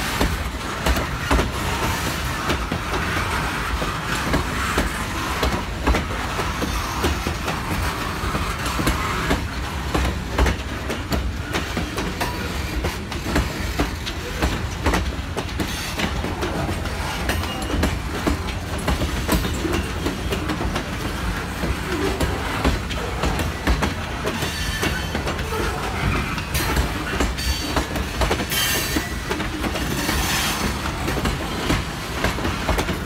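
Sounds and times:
train wheels rumbling on rail: 0.0s - 33.0s
wheels clacking over rail joints: 0.0s - 33.0s.

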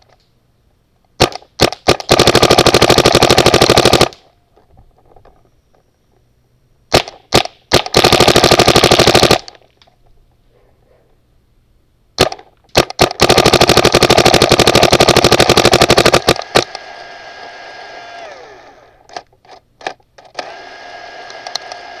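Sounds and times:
paintball marker firing: 1.2s - 4.3s, 6.9s - 9.6s, 12.2s - 16.8s
steady whirring: 13.6s - 19.3s, 20.2s - 22.0s.

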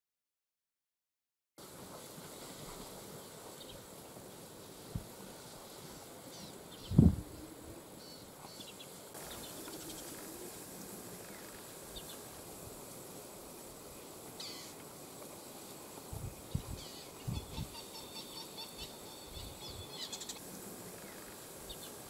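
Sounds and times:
steady high hiss: 1.6s - 22.0s.

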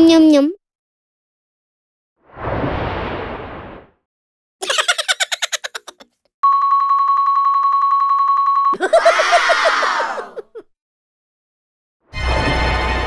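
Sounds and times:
electronic ringing tone: 6.4s - 8.8s.

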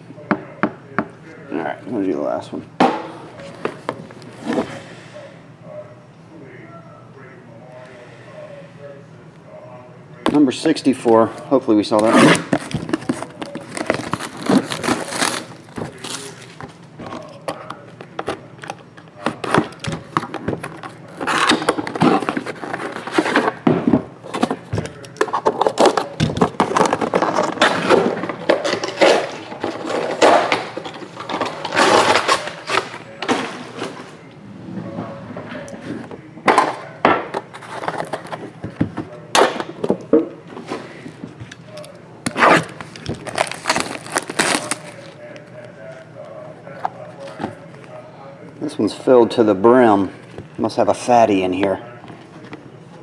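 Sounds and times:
shrink wrap crinkling and tearing: 12.0s - 19.4s, 42.2s - 46.4s.

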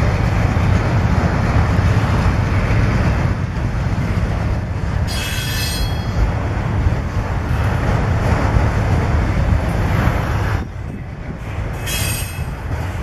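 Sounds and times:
freight train rumbling by: 0.0s - 13.0s
steel wheel squealing: 5.1s - 6.2s, 11.8s - 12.6s.

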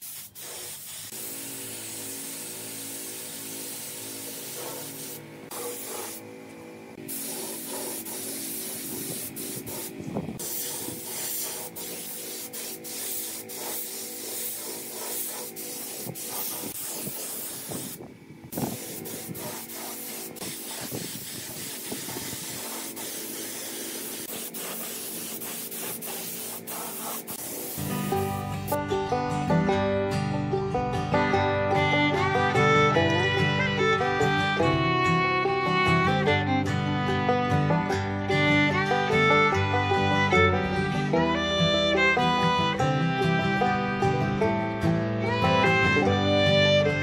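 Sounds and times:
spray gun hissing: 0.0s - 6.3s, 6.9s - 28.8s.

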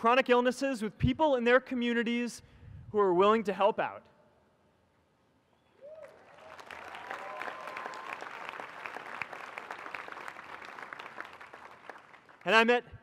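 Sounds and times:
crowd applauding: 5.8s - 12.6s.

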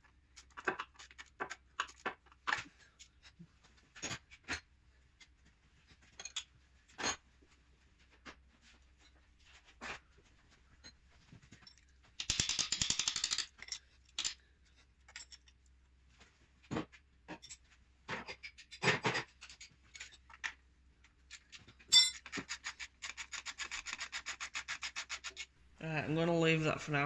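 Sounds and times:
hand ratchet clicking: 22.2s - 25.5s.

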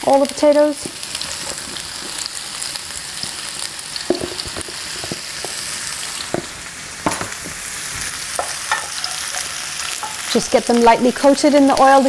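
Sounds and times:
potatoes sizzling in oil: 0.0s - 12.0s
potatoes knocking against pan: 4.0s - 7.6s.

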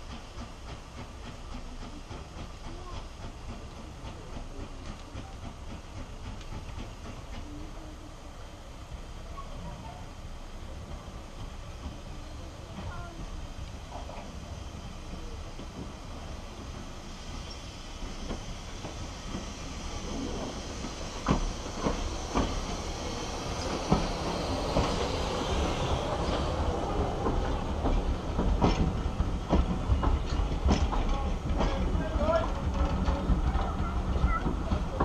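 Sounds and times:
steam train rolling past: 0.0s - 35.0s
wheels clicking on rails: 10.8s - 35.0s.

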